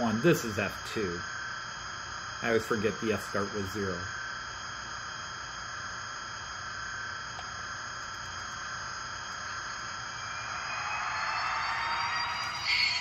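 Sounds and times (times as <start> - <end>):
low hum: 9.2 - 13.0
electric locomotive whine: 9.3 - 13.0.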